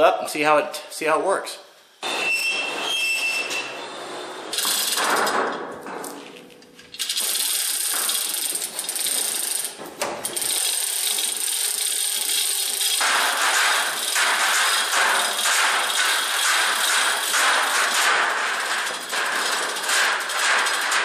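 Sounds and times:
hoist chain rattling: 0:06.9 - 0:21.0.

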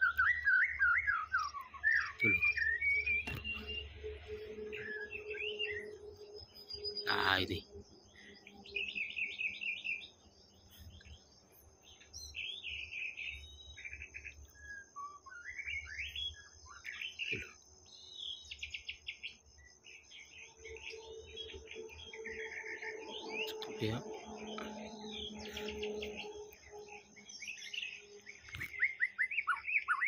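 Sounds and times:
bird singing whistled phrases: 0:00.0 - 0:07.5, 0:12.3 - 0:17.6, 0:20.2 - 0:30.0.

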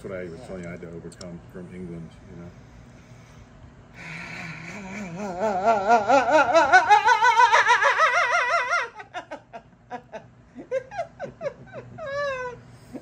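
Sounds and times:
person laughing: 0:04.5 - 0:13.0.

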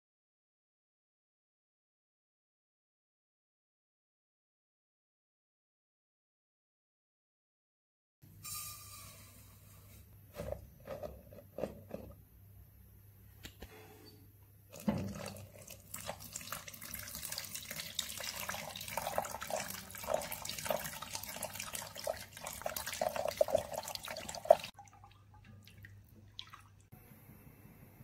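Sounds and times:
milk pouring and splashing: 0:14.7 - 0:26.9.

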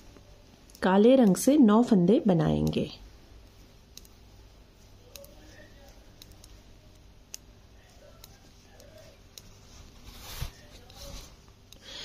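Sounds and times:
knitting needles clicking: 0:00.0 - 0:01.6, 0:02.4 - 0:09.6.

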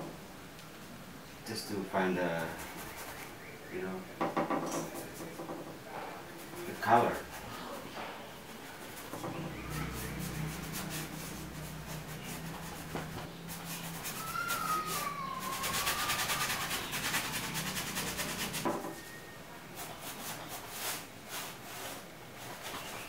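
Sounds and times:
paintbrush scrubbing canvas: 0:02.4 - 0:03.3, 0:06.4 - 0:19.0, 0:19.7 - 0:23.0
steady low hum: 0:05.8 - 0:20.0
wavering whistle-like tone: 0:18.9 - 0:19.4.

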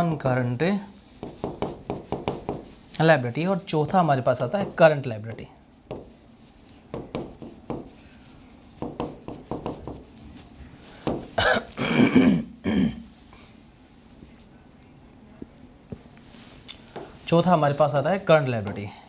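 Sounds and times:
marker pen scratching on whiteboard: 0:00.6 - 0:03.5, 0:04.4 - 0:11.4
man coughing: 0:11.4 - 0:13.0.

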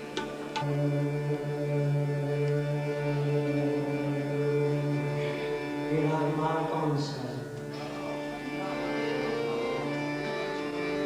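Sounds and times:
harmonium drone: 0:00.0 - 0:11.0
strummed plucked strings: 0:00.0 - 0:11.0
sliding melodic line: 0:07.7 - 0:11.0.

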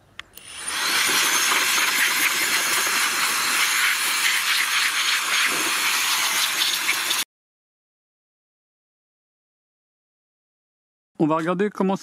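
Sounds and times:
electric air blower hissing: 0:00.4 - 0:07.2.

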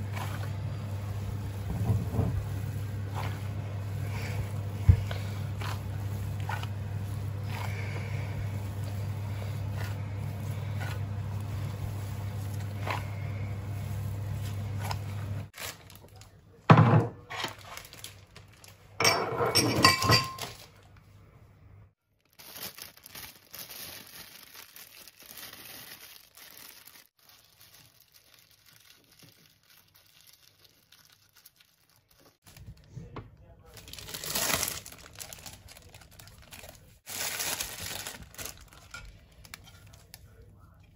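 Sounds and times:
steady low hum: 0:00.0 - 0:15.5
soft squishes of kneading: 0:00.0 - 0:16.6, 0:23.4 - 0:40.9
metal pot clattering on counter: 0:19.0 - 0:20.5.

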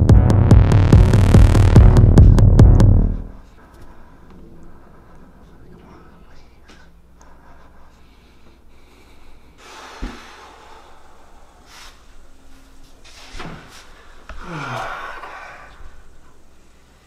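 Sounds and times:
man gasping and breathing hard: 0:07.3 - 0:11.9, 0:14.3 - 0:15.8.

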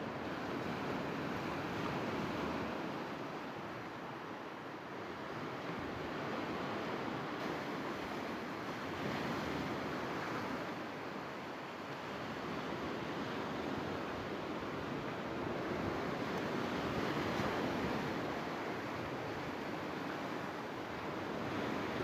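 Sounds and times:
sea waves washing on sand: 0:05.0 - 0:22.0.

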